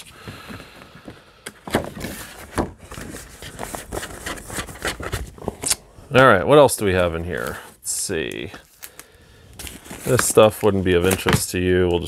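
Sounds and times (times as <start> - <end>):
paper and plastic rustling: 0.0 - 5.8, 8.4 - 12.0.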